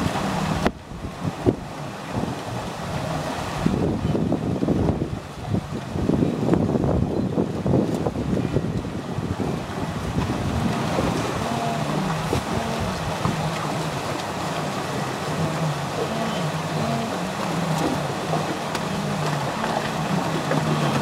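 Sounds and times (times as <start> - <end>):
wind buffeting microphone: 0.0 - 21.0
wildebeest herd calling: 14.6 - 20.4.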